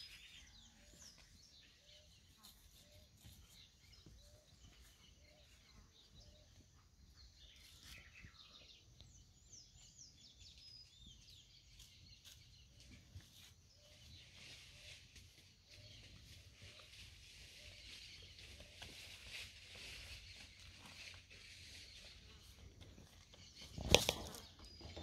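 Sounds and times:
faint birds chirping: 0:00.0 - 0:25.0.

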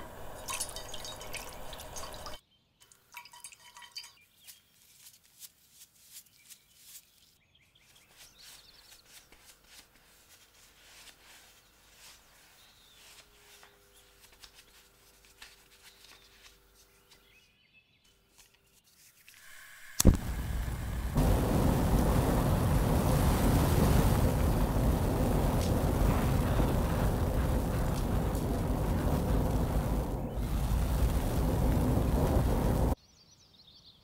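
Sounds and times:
basting brush dabbing: 0:08.0 - 0:13.6
blowtorch hissing: 0:19.5 - 0:33.0
blowtorch igniting click: 0:19.9 - 0:33.0.

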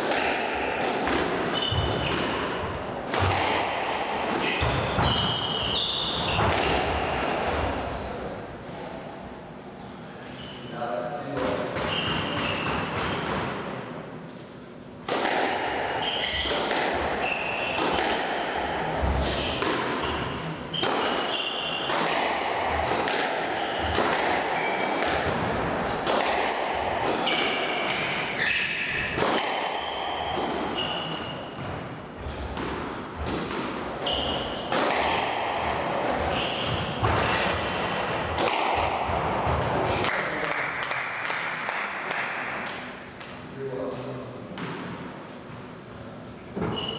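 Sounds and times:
squash ball smacking rackets and walls: 0:00.0 - 0:09.2, 0:11.2 - 0:45.6, 0:46.4 - 0:46.9
shoes squeaking on wooden floor: 0:34.0 - 0:34.6, 0:36.2 - 0:37.5, 0:46.6 - 0:46.9.

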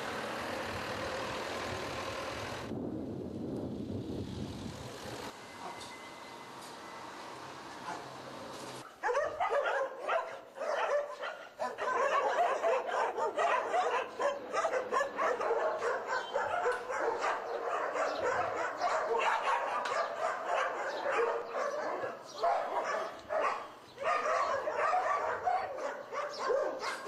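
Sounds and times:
dogs barking together: 0:08.8 - 0:27.0.

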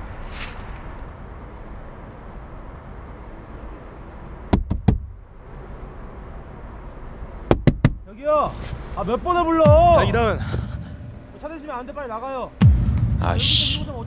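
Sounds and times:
knuckles rapping on car window: 0:07.5 - 0:08.0
low rumble: 0:09.7 - 0:11.7, 0:12.6 - 0:14.0.

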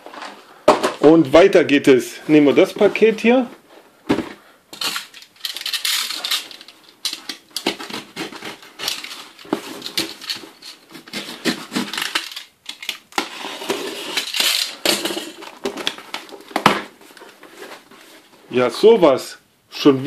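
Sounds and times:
knife slitting packing tape: 0:04.8 - 0:14.8
cardboard scraping and tearing: 0:07.6 - 0:12.4.

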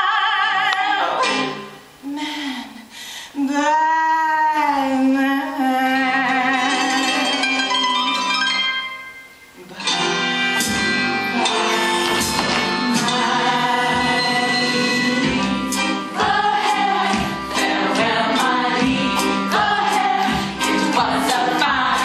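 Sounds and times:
musical theatre accompaniment: 0:00.0 - 0:22.0
voices singing together: 0:10.9 - 0:22.0.

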